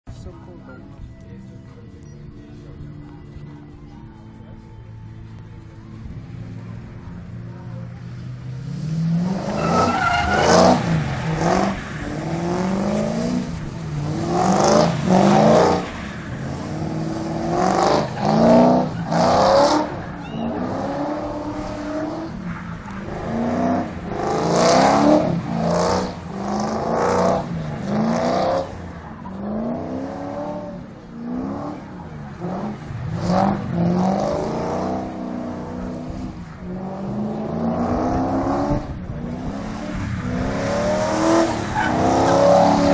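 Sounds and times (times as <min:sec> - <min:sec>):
car engine revving: 0:05.2 - 0:42.9
tyre squeal: 0:09.3 - 0:11.0, 0:20.2 - 0:20.8.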